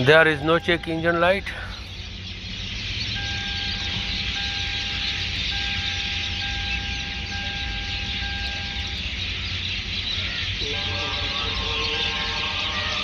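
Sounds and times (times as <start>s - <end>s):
high-pitched electronic tone: 10.4s - 13.0s.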